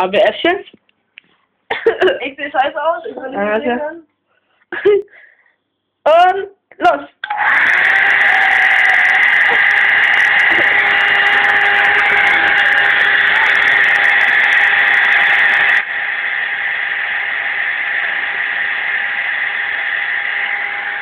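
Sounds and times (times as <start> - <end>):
hair dryer running: 7.2 - 21.0.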